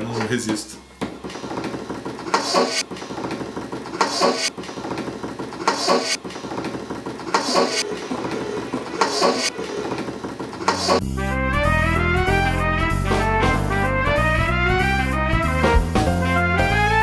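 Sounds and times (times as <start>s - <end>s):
sustained backing music: 11.0s - 17.0s.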